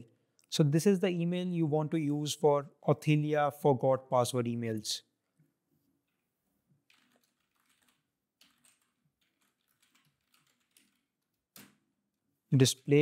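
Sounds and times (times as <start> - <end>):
faint keyboard typing: 5.4 - 11.9.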